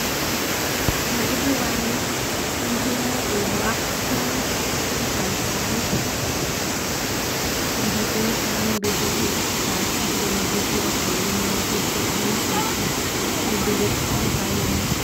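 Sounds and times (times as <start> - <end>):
waterfall rushing over rocks: 0.0 - 15.0.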